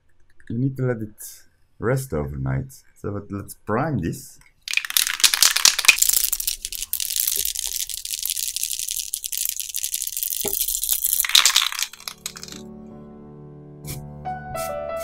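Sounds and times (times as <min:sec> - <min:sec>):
spray can rattling when shaken: 0:04.7 - 0:12.6.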